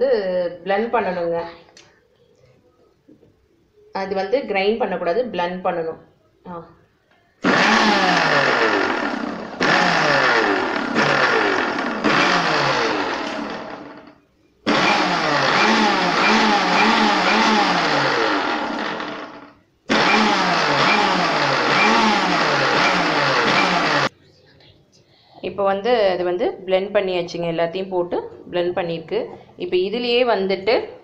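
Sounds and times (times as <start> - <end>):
mixer grinder whining: 7.4 - 24.1.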